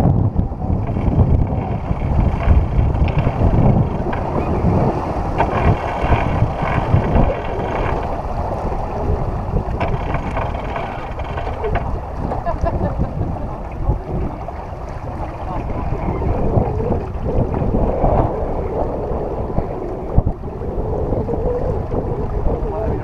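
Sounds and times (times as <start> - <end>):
wind buffeting microphone: 0.0 - 23.0
boat knocks: 0.4 - 16.6.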